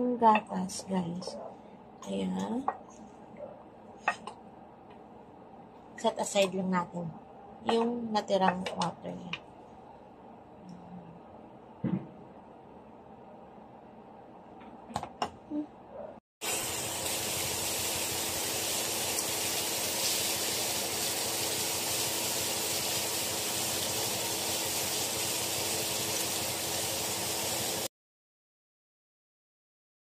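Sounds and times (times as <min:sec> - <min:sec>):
bacon sizzling in oil: 0:16.4 - 0:27.9.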